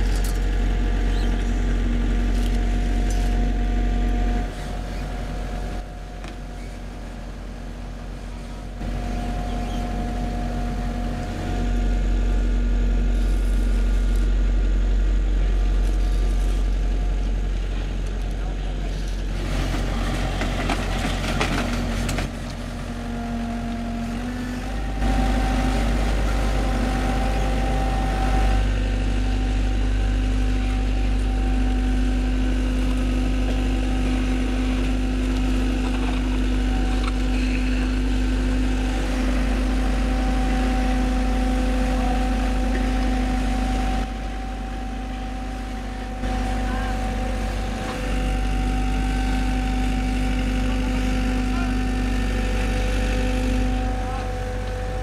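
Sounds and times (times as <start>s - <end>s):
diesel engines rumbling: 0.0s - 55.0s.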